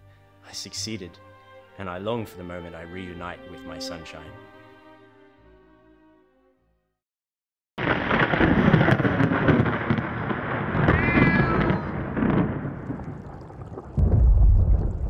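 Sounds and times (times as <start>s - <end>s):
heavy rain: 7.8s - 15.0s
thunder: 7.8s - 15.0s
cat meowing: 10.8s - 12.0s.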